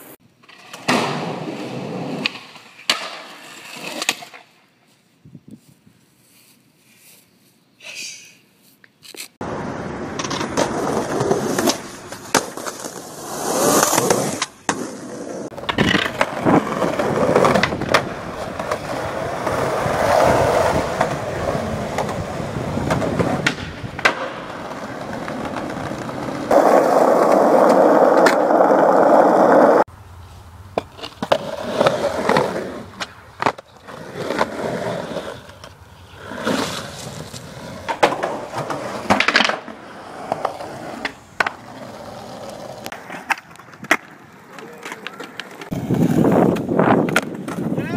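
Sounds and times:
skateboard wheels rolling on concrete: 0:00.0 - 0:07.6, 0:08.6 - 0:47.9
skateboard clacking on ground: 0:02.2 - 0:04.5, 0:10.1 - 0:14.9, 0:15.5 - 0:19.8, 0:20.7 - 0:28.9, 0:30.7 - 0:34.5, 0:36.5 - 0:47.9.

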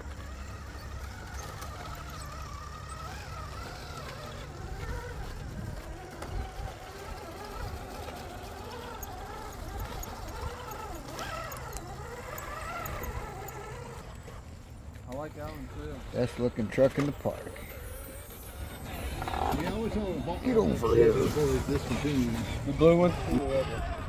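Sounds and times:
toy car motor whining: 0:00.0 - 0:24.0.

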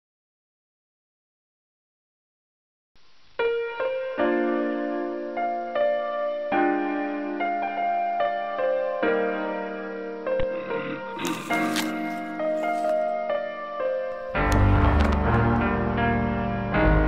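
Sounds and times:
piano music: 0:03.4 - 0:17.0.

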